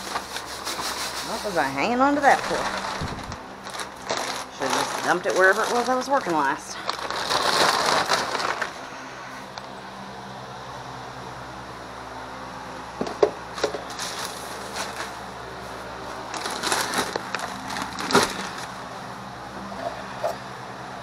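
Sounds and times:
plastic rustling: 0:00.0 - 0:09.6, 0:13.6 - 0:18.8
steady low hum: 0:00.0 - 0:21.0
plastic bins clacking together: 0:02.2 - 0:08.7, 0:16.3 - 0:18.7.

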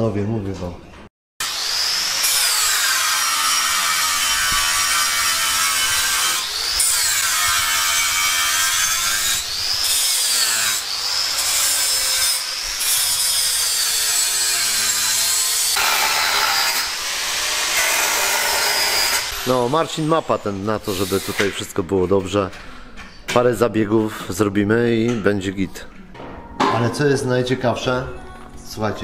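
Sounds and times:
electric grinder on metal: 0:01.4 - 0:20.0.

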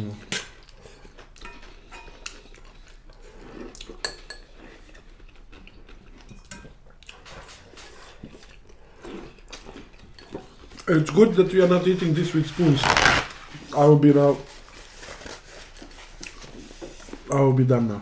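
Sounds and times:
cutlery clicking on dishes: 0:06.3 - 0:06.8.

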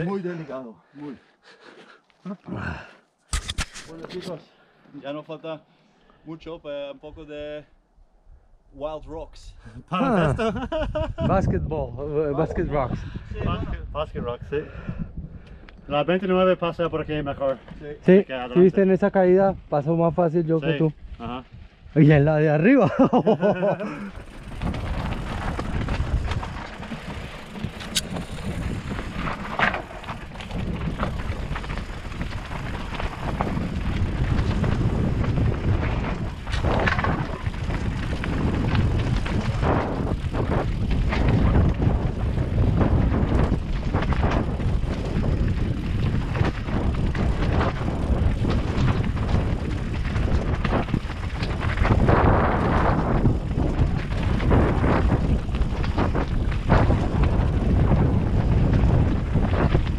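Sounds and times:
wind on microphone: 0:09.6 - 0:16.0, 0:23.9 - 0:59.9
bike tyres rolling on gravel: 0:15.9 - 0:59.9
bike knocking and rattling: 0:23.0 - 0:59.9.

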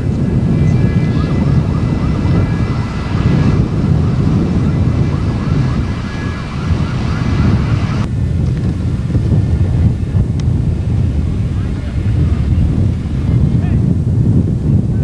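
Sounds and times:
wind buffeting microphone: 0:00.0 - 0:15.0
siren yelping: 0:00.3 - 0:08.1.

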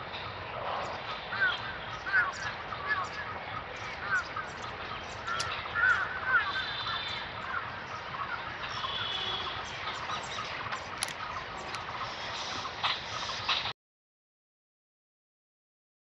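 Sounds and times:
steady background noise: 0:00.0 - 0:13.7
crows cawing: 0:00.5 - 0:11.2.

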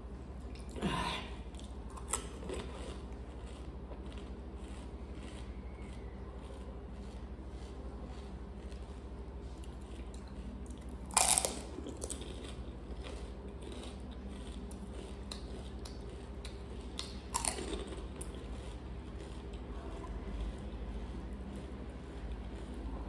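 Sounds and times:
soft chewing: 0:00.0 - 0:23.0
crisp food crunching: 0:01.5 - 0:23.0.

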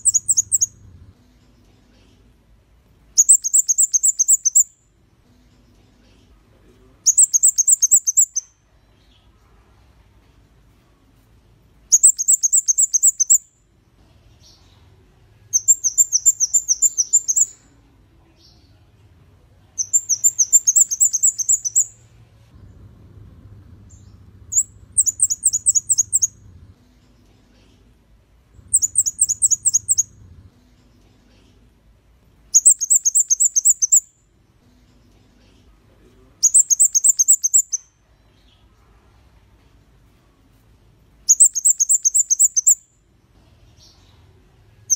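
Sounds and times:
bird singing high thin notes: 0:19.8 - 0:22.0, 0:28.7 - 0:30.1.

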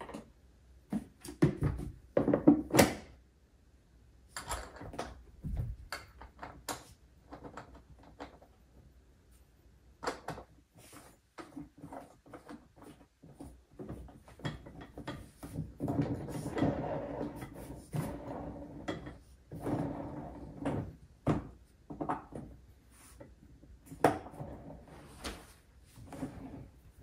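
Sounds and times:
plastic parts clicking and knocking: 0:04.3 - 0:08.6
plastic scraping and rubbing: 0:10.8 - 0:21.0.

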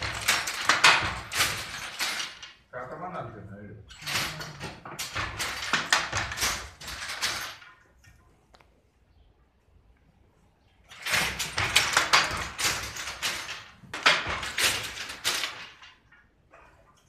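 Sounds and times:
wooden loom clacking: 0:00.0 - 0:02.7, 0:03.9 - 0:08.2, 0:10.9 - 0:17.0.

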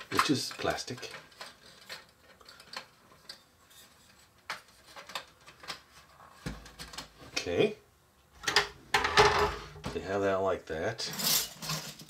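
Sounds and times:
plastic toy silverware clattering: 0:11.1 - 0:12.0.

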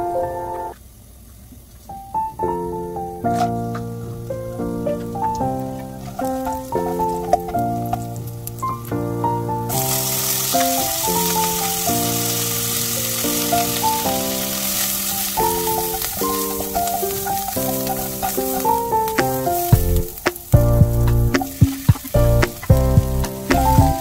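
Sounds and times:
instrumental background music: 0:02.3 - 0:24.0
spices sizzling in hot oil: 0:05.1 - 0:24.0.

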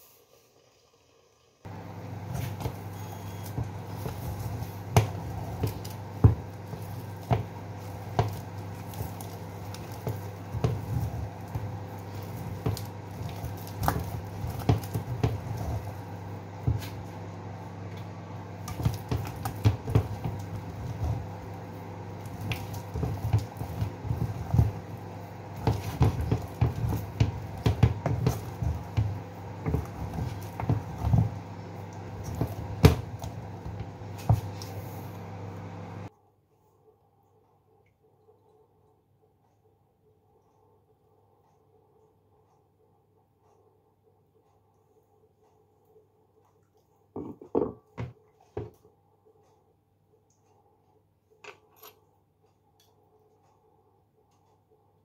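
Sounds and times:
steady low hum: 0:01.3 - 0:36.2
dough squelching: 0:01.7 - 0:36.1.

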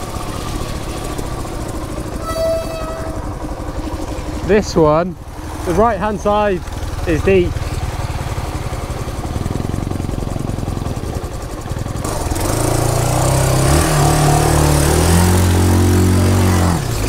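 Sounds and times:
water spraying and hissing: 0:00.0 - 0:02.2
motorcycle engine running: 0:00.0 - 0:17.0.

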